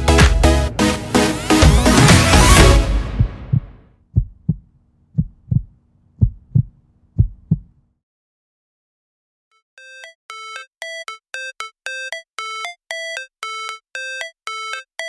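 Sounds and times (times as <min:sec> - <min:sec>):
electronic music: 0:00.0 - 0:03.6
heartbeat thumps: 0:02.6 - 0:07.7.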